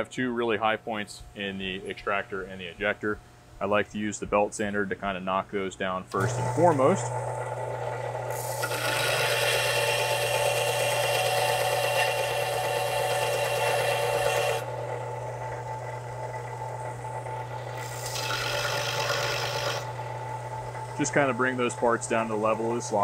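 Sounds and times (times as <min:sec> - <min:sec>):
motor humming: 0:06.1 - 0:23.0
belt sander grinding metal: 0:06.2 - 0:20.1.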